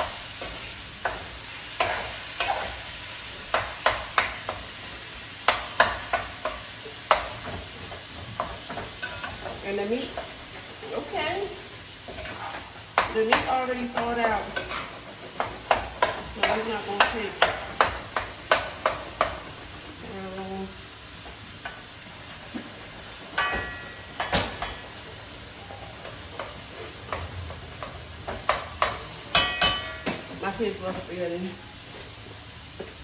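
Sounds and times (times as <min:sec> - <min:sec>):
meat sizzling: 0:00.0 - 0:33.0
spatula scraping frying pan: 0:00.1 - 0:19.8.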